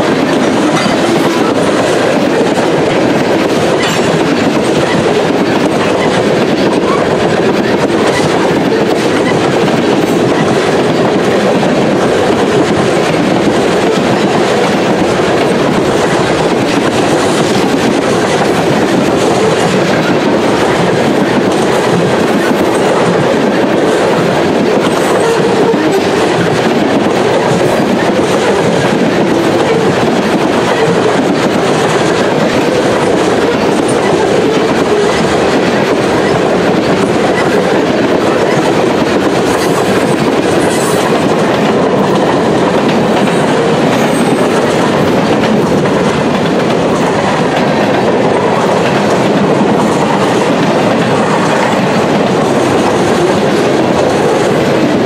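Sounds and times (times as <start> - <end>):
freight train wheels rumbling: 0.0 - 55.0.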